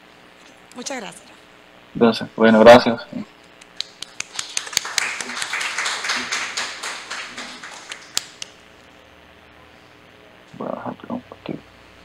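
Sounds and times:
people clapping: 3.6s - 8.7s.

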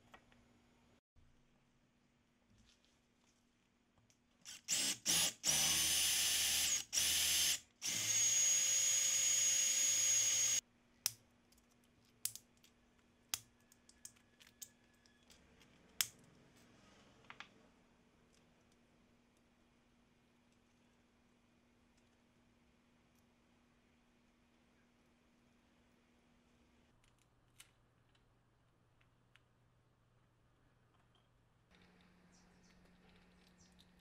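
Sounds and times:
cordless drill running: 4.5s - 10.6s.

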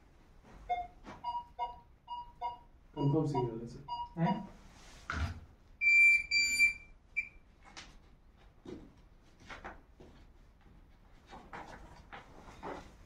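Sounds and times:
metal detector beeps: 5.8s - 7.4s.

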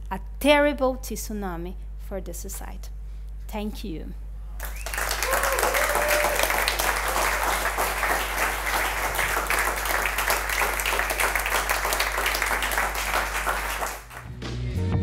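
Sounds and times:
audience applauding: 4.6s - 14.3s.

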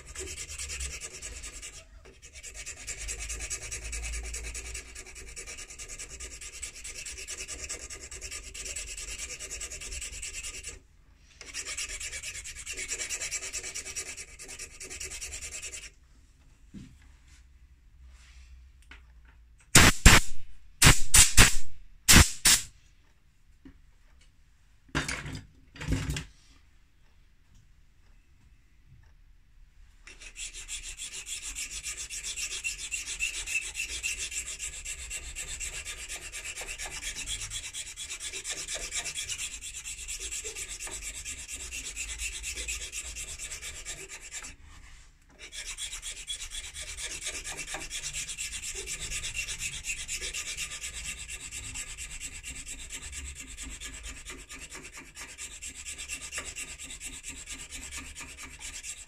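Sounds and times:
hand file rasping on metal: 0.0s - 10.8s, 11.4s - 16.0s, 30.0s - 59.0s.

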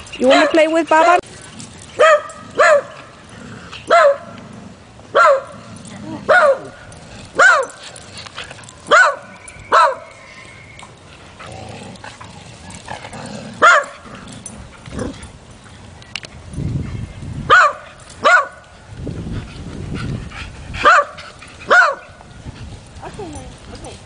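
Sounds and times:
dog barking: 2.0s - 3.0s, 3.9s - 4.3s, 5.2s - 5.6s, 6.3s - 6.8s, 7.4s - 7.8s, 8.9s - 10.0s, 13.6s - 13.9s, 17.5s - 18.6s, 20.8s - 22.0s.

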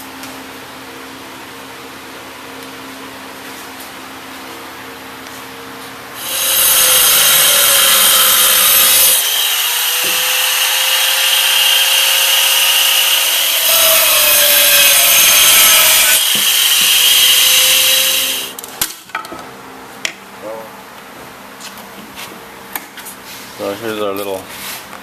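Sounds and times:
power tool cutting metal: 6.2s - 18.6s.

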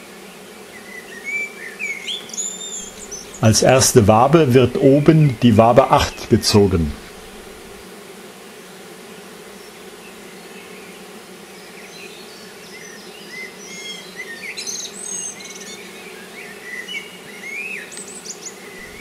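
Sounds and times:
honeybees humming: 0.0s - 19.0s
birds chirping: 0.8s - 7.8s, 12.3s - 19.0s.

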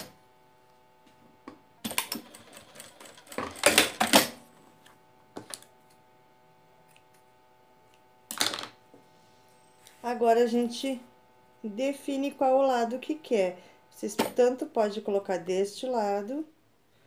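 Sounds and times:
faint steady hum: 0.0s - 17.0s
sewing machine running: 1.8s - 4.4s.

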